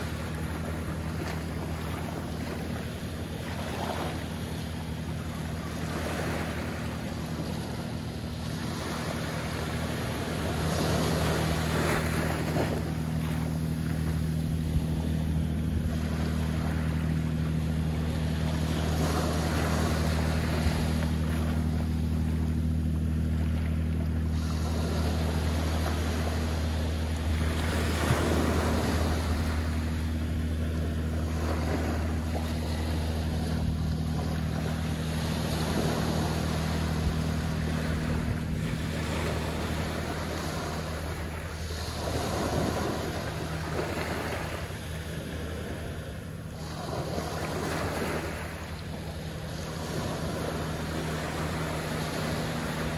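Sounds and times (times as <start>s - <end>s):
low engine hum: 0.0s - 52.9s
waves washing onto sandy beach: 0.0s - 52.9s.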